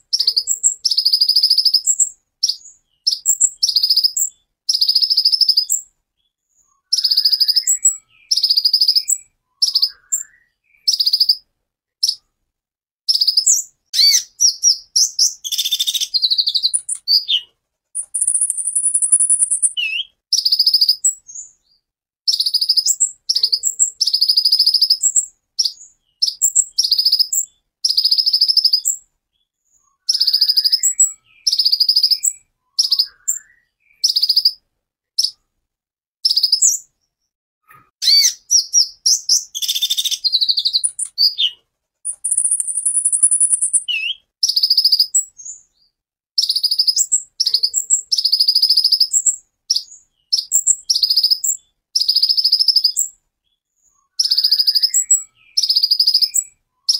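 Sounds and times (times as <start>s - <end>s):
bird singing high trills: 6.7s - 11.4s, 13.1s - 21.4s, 29.9s - 34.6s, 38.0s - 45.6s, 54.0s - 56.9s.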